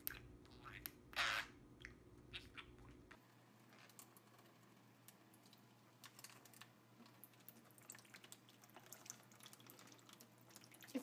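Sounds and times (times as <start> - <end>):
small drips and clicks: 0.0 - 1.0, 1.8 - 11.0
tap water trickling: 3.8 - 11.0.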